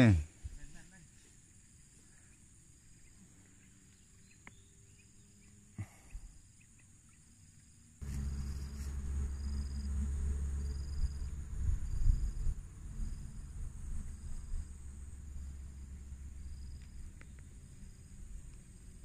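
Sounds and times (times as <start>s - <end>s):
insects chirping: 0.0s - 19.0s
loud low rumble: 8.0s - 19.0s.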